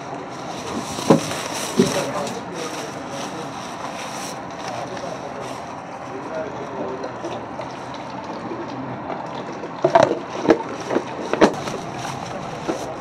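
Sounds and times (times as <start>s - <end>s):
steady background noise: 0.0s - 13.0s.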